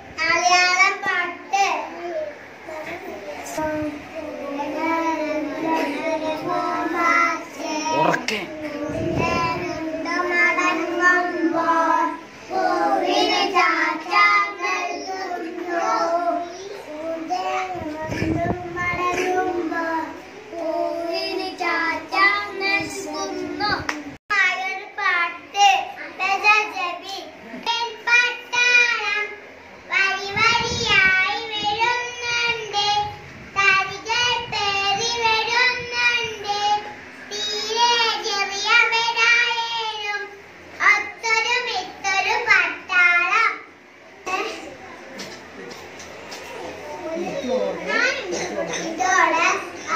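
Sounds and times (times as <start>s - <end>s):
children singing into a microphone: 3.4s - 23.8s.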